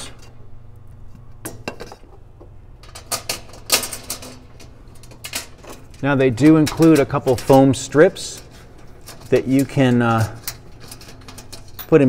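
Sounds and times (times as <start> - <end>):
small metal parts clinking: 2.8 - 12.0.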